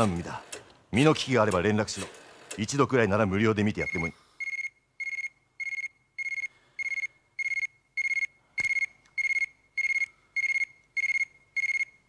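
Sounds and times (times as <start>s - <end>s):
telephone ringing: 3.8s - 12.0s.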